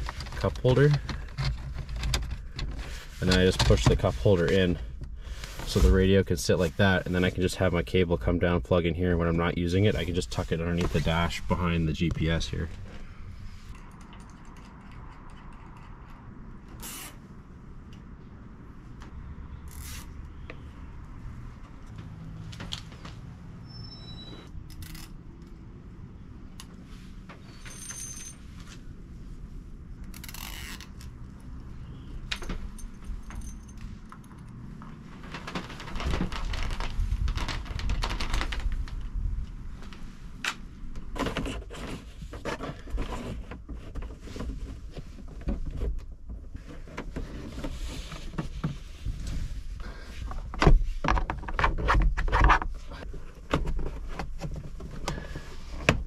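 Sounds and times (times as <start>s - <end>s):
hands handling cable clicks and scrapes: 0.0s - 6.0s, 9.6s - 17.2s, 21.6s - 23.2s, 30.0s - 56.0s.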